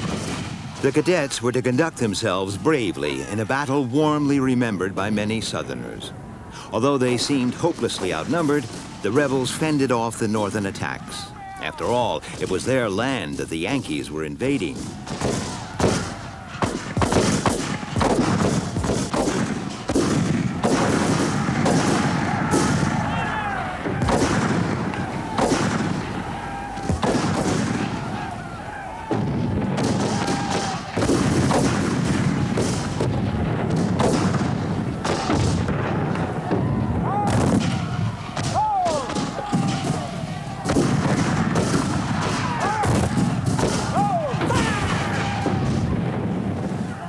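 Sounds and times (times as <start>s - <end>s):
rifle shots with echo: 0.0s - 1.0s, 14.7s - 46.4s
musket and cannon fire: 0.0s - 2.0s, 14.6s - 46.9s.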